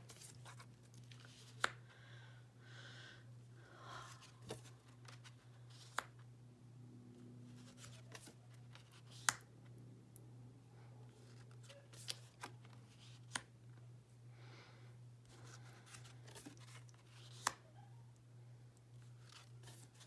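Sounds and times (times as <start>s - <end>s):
cards sliding and rustling: 0.0s - 1.8s, 4.1s - 6.2s, 7.5s - 9.5s, 11.2s - 13.5s, 15.3s - 17.6s, 19.0s - 20.0s
steady low hum: 0.0s - 8.8s, 12.6s - 20.0s.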